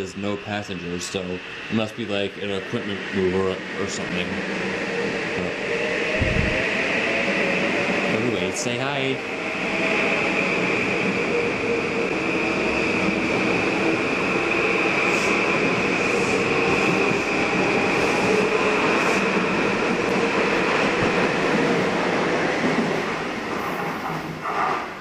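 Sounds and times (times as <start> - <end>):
train passing: 0.0 - 25.0
train wheels rushing on rail: 0.0 - 25.0
high whine: 4.9 - 7.4.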